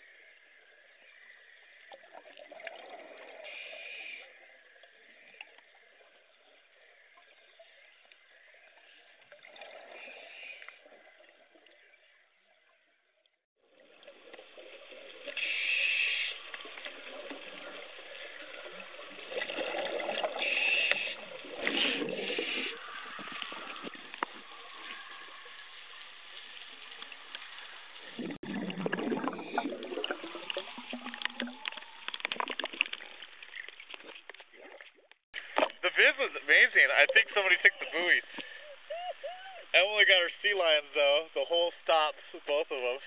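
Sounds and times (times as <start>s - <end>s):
water splashing: 13.6s - 40.8s
underwater regulator bubbling: 14.1s - 25.5s, 28.0s - 35.8s.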